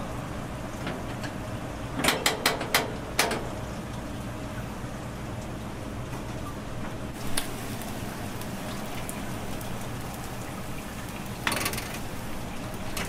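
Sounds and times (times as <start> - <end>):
eels sizzling and crackling: 7.2 - 13.0.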